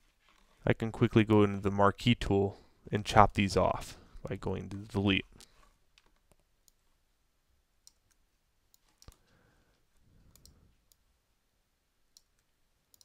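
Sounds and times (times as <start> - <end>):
computer mouse clicks: 7.8 - 9.3, 10.3 - 11.0, 12.2 - 13.0.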